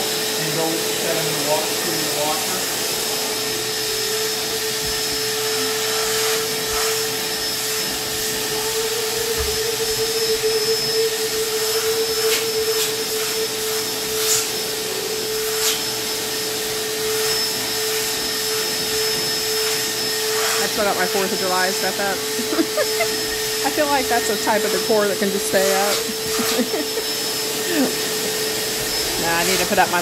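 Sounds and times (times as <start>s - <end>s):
shop vacuum whining: 0.0s - 30.0s.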